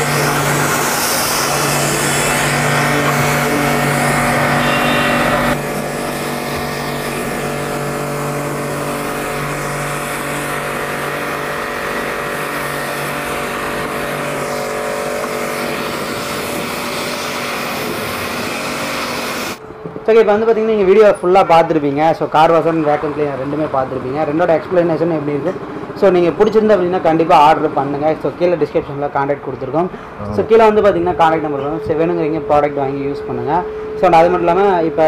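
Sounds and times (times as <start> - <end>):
water jet hissing on car: 0.0 - 19.6
pressure washer motor humming: 0.0 - 19.8.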